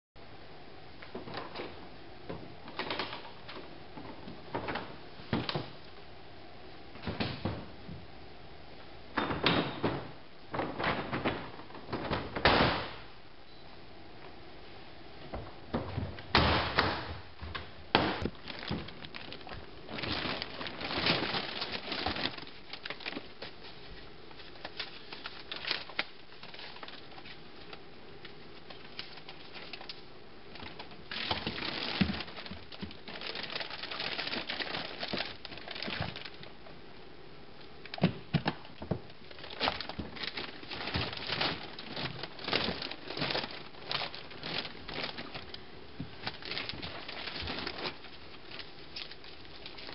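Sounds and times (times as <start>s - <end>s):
plastic film rustling: 18.2s - 36.6s, 38.8s - 49.9s
plastic container walls clicking: 37.9s - 49.9s.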